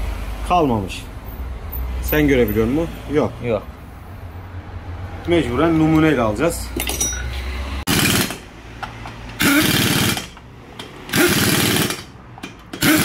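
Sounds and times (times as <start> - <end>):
pneumatic impact wrench hammering: 7.9 - 13.0.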